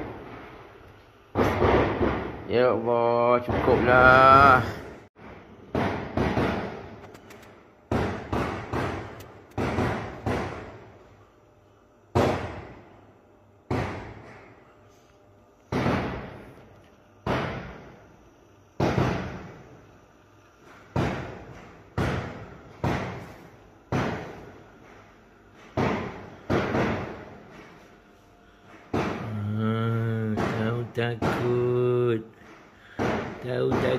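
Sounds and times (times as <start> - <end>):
sharp echoing bangs: 5.7 - 7.0, 7.9 - 10.9.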